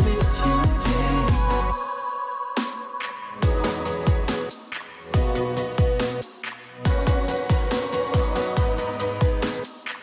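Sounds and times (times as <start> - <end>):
deep kick drum: 0.0 - 1.8
electronic dance music: 0.0 - 10.0.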